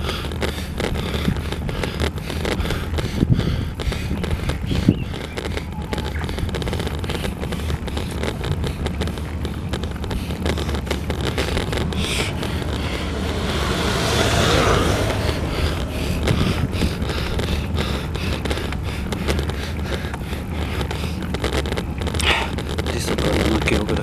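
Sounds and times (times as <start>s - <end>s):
road and wind rumble: 0.0s - 24.0s
vehicle passing: 8.4s - 19.8s.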